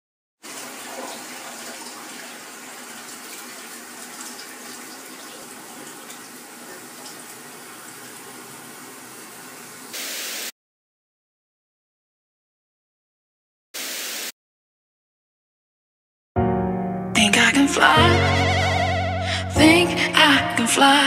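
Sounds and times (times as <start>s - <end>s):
steady rushing hiss: 9.8s - 10.5s
tv static white noise burst: 9.9s - 10.5s, 13.8s - 14.3s.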